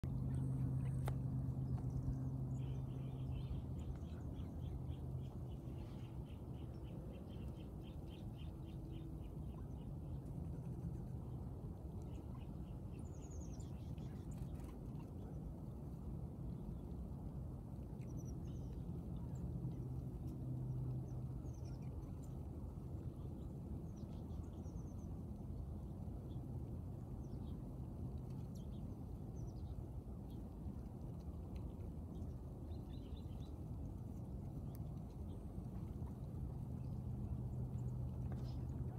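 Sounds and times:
low outdoor rumble: 0.0s - 38.9s
low steady hum: 0.0s - 38.9s
small birds chirping: 0.1s - 11.4s, 31.4s - 38.9s.

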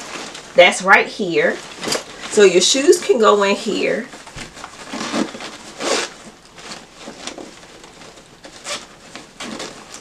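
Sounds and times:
bag zipper and fabric rustle: 4.8s - 7.6s.

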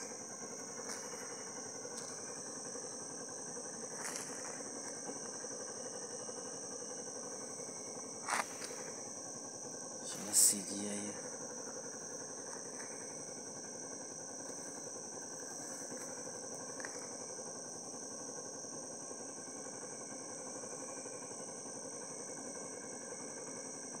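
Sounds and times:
high-pitched insect chorus: 0.0s - 24.0s
lower-pitched steady call: 10.0s - 11.8s.

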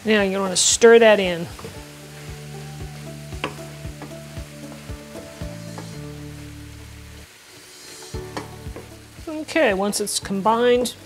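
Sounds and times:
soft background music: 0.0s - 11.0s
vegetables sizzling in a skillet: 0.0s - 11.0s
wooden spoon knocking and scraping pan: 8.1s - 9.0s.

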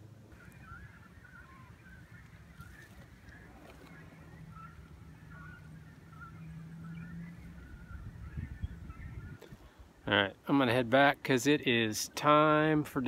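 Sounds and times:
cormorants calling: 0.0s - 9.5s.

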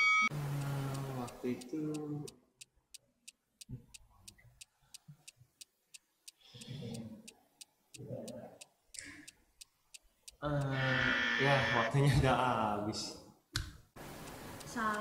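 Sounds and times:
countdown timer ticking: 0.0s - 10.8s, 14.0s - 15.0s.

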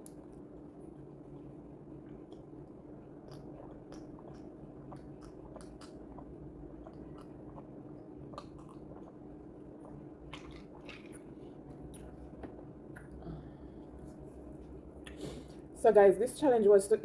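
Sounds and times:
faint steady hum: 0.0s - 17.0s
person sipping and swallowing: 3.3s - 14.2s.

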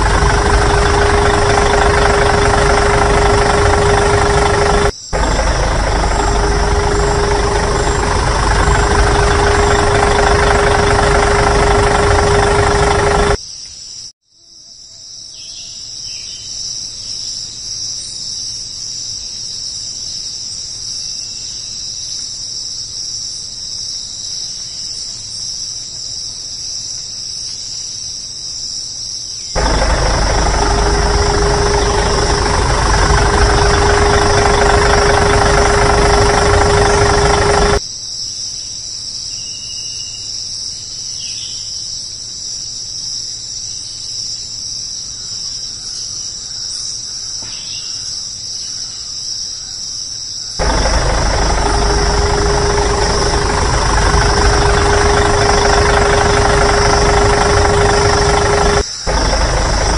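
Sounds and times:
tractor engine idling: 0.0s - 13.4s, 29.6s - 37.8s, 50.6s - 59.9s.

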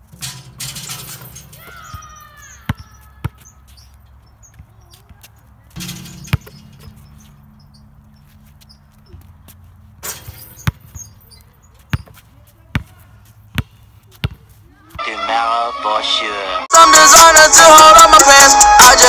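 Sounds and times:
ball hitting hoop clatter: 0.0s - 3.5s, 5.8s - 7.2s, 10.0s - 11.4s
basketball bouncing: 0.1s - 5.2s, 5.8s - 7.3s, 10.0s - 14.5s
hip hop song: 15.0s - 19.0s.

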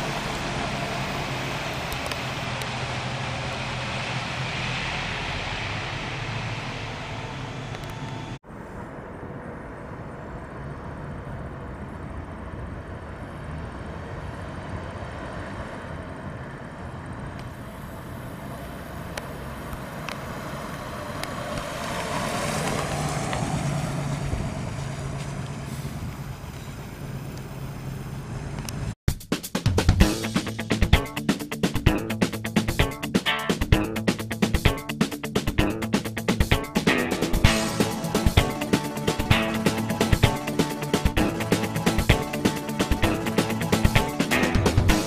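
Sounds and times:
car engine running: 30.0s - 45.0s.

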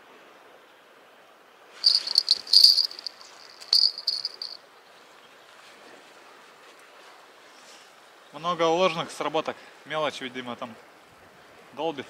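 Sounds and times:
bite alarm jingling: 1.8s - 4.6s.

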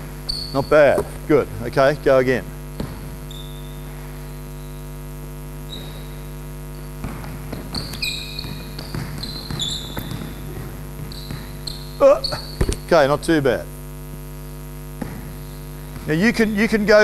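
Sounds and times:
electrical mains hum: 0.0s - 17.0s
sneaker squeaks: 0.2s - 1.3s, 2.8s - 5.0s, 5.6s - 13.0s, 15.0s - 16.3s
basketball bouncing on wooden court: 0.3s - 1.3s, 2.7s - 4.4s, 5.7s - 12.9s, 15.0s - 16.5s.

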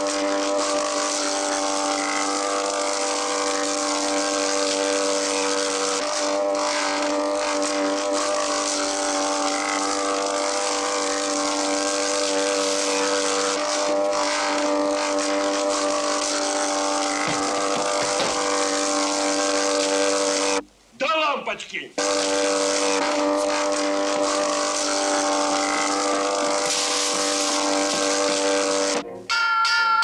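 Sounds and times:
motor droning: 0.0s - 20.7s, 22.0s - 29.1s.

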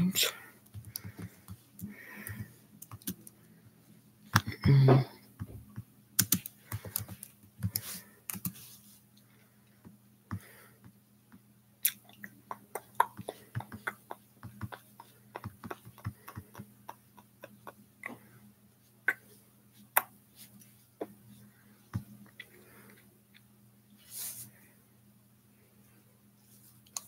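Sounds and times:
typing on computer keyboard: 0.7s - 3.3s, 6.2s - 8.6s.

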